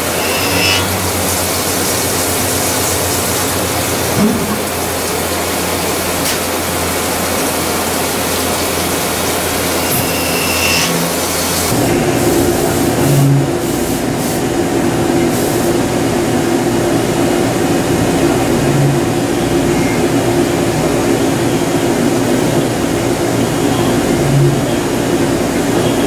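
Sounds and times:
drill cutting steel: 0.0s - 2.2s, 9.0s - 11.7s
spindle hum: 0.0s - 13.7s, 17.7s - 26.0s.

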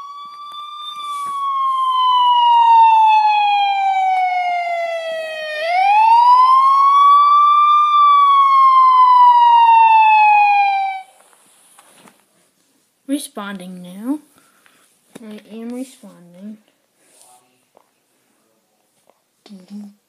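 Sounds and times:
electronic wailing siren: 0.0s - 11.1s.

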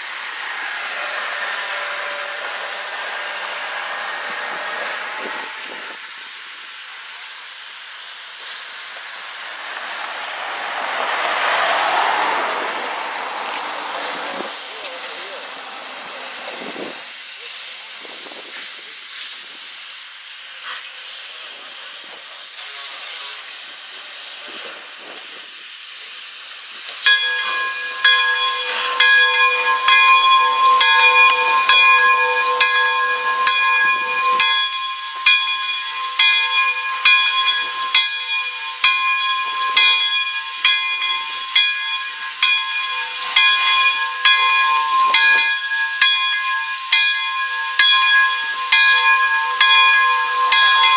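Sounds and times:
locomotive bell ringing: 0.0s - 6.2s, 8.4s - 17.0s, 27.0s - 50.9s
steam hissing: 0.0s - 50.9s.

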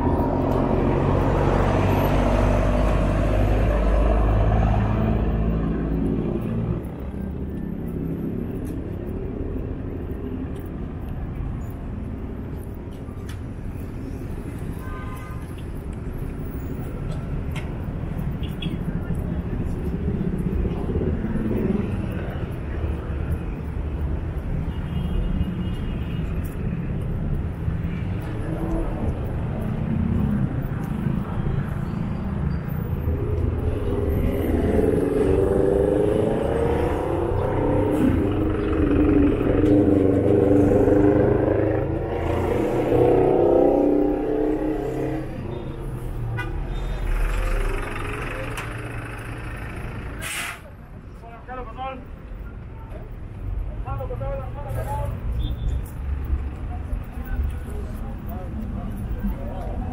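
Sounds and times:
city traffic rumbling: 0.0s - 59.9s
bus engine accelerating: 32.7s - 51.0s.

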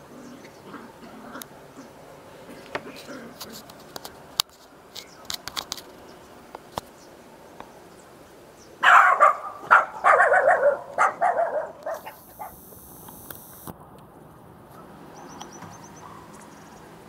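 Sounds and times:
dog barking: 8.8s - 12.6s.

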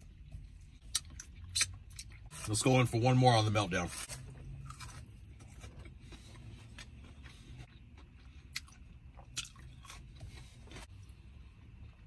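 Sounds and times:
low steady hum: 0.0s - 12.0s
person chewing chicken wing: 4.6s - 10.8s.

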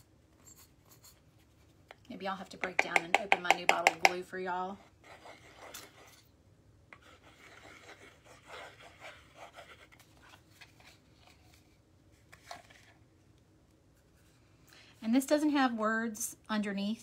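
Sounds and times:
sharp tap: 2.6s - 4.2s.

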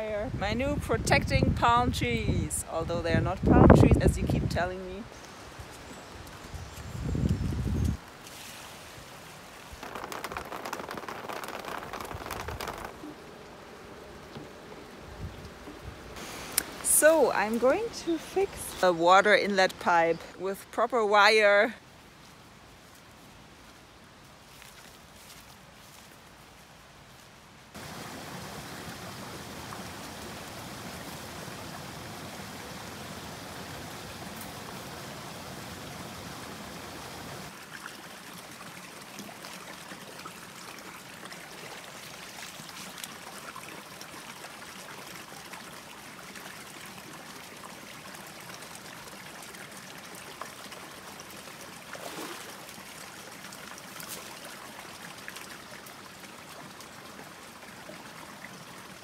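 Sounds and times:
stream water pouring into pool: 8.3s - 14.0s, 27.8s - 59.0s
small splashes or knocks: 9.6s - 13.6s, 51.9s - 52.8s.

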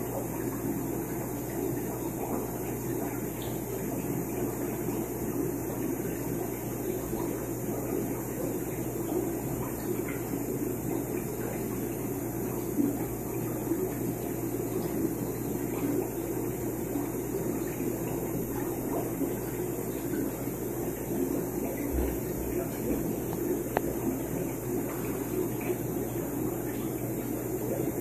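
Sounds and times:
air bubbles bubbling in water: 0.0s - 28.0s.

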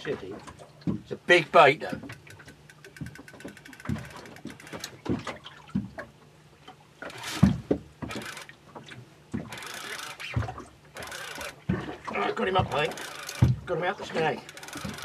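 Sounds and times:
water slapping boat hull: 0.0s - 15.0s
fishing reel winding: 2.2s - 4.9s, 8.1s - 8.5s, 9.5s - 10.3s, 11.0s - 11.6s, 12.9s - 13.4s, 14.4s - 15.0s.

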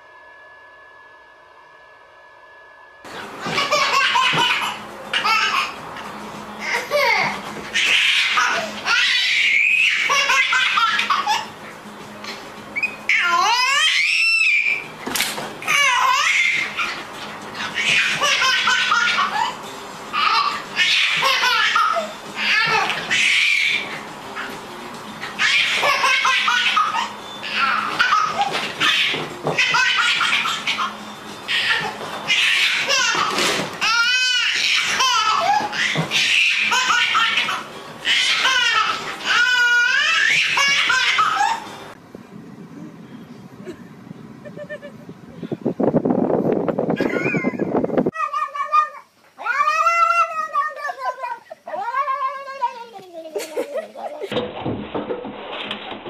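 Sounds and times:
baby laughing and squealing: 3.4s - 5.8s, 6.6s - 11.6s, 12.8s - 14.8s, 15.6s - 24.5s, 25.2s - 41.7s, 47.0s - 54.3s.

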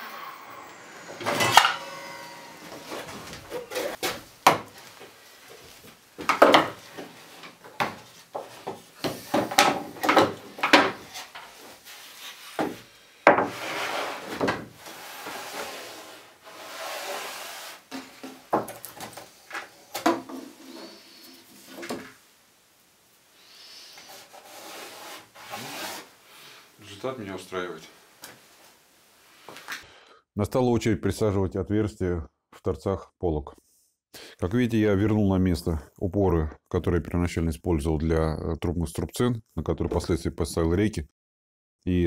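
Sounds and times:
boards scraping: 0.0s - 22.1s, 23.9s - 26.1s
wooden knocks and clatters: 6.2s - 11.5s, 17.9s - 19.2s.

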